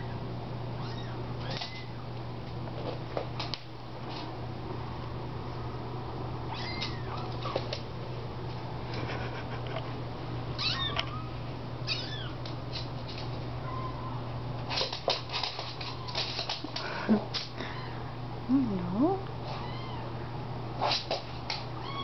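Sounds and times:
steady low hum: 0.0 - 22.0
kittens mewing: 0.8 - 2.0, 6.5 - 7.7, 10.6 - 12.4.

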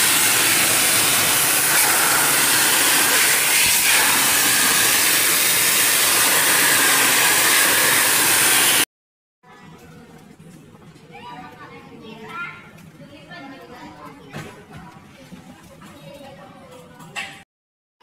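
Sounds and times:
water jet spraying on metal fins: 0.0 - 8.8.

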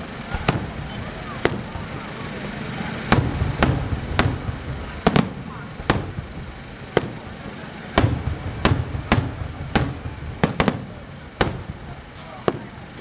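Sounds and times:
fireworks bangs with rumble: 0.0 - 13.0.

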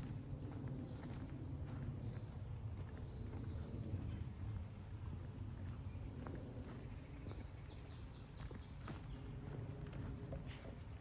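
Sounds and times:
footsteps on dirt path: 0.0 - 11.0
steady low rumble: 0.0 - 11.0
songbird singing: 5.6 - 11.0.

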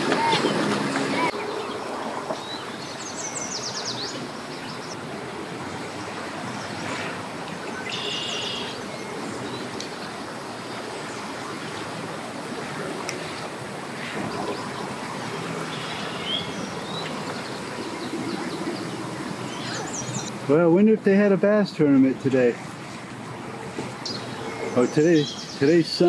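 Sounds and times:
rushing water: 0.0 - 26.0
wind: 0.0 - 26.0
bird chirping: 1.3 - 5.0, 7.7 - 10.0, 15.7 - 20.4, 24.0 - 26.0.

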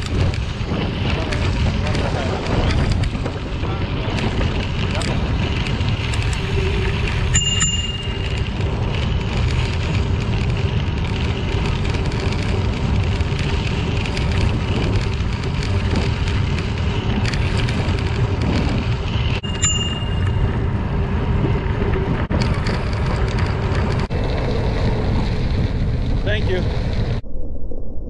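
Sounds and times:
bicycle tyres rolling on gravel: 0.0 - 27.2
bicycle bell ring: 7.1 - 8.6, 19.4 - 20.7.

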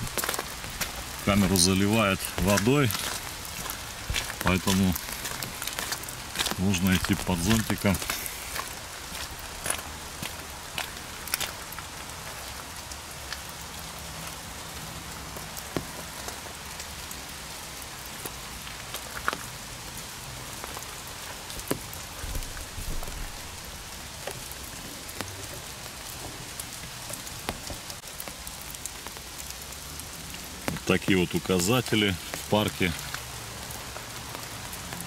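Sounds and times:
rain pattering on umbrella: 0.0 - 35.0.

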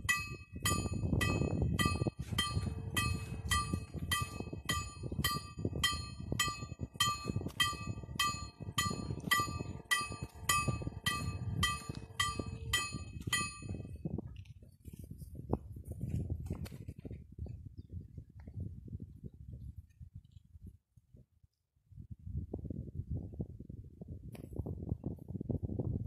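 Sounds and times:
level crossing warning bell: 0.0 - 14.0.

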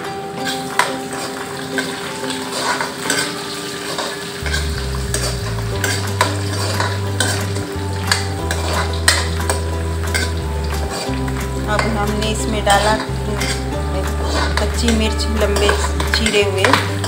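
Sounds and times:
food sizzling in oil: 0.0 - 17.0
spoon scraping iron pan: 0.5 - 17.0
low hum: 4.5 - 17.0.

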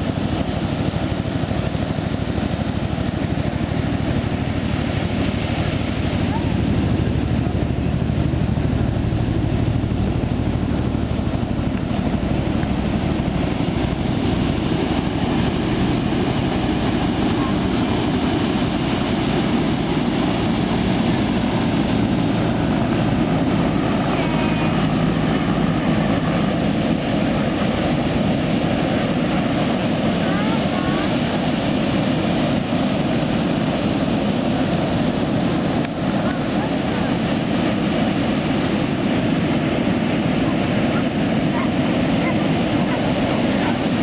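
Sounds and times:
ocean surf rushing: 0.0 - 44.0
low rumble: 1.4 - 30.6.

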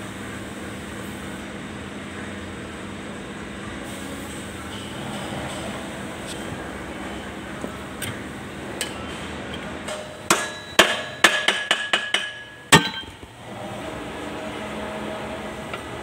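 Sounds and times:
workshop hum: 0.0 - 16.0
hammer striking steel: 8.8 - 13.2.

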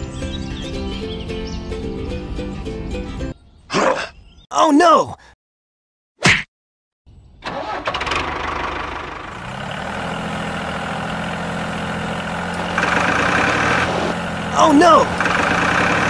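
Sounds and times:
engine running: 7.4 - 16.0.

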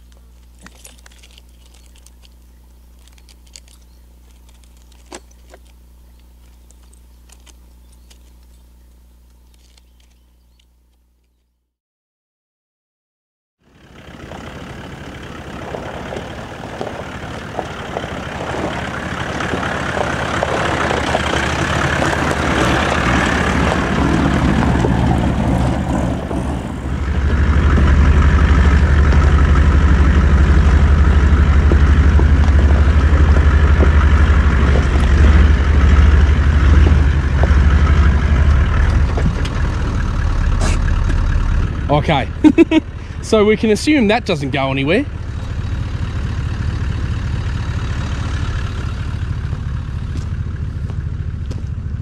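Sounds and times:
vehicle driving on gravel: 0.0 - 10.6, 13.6 - 52.0
heavy engine drone: 13.6 - 52.0.

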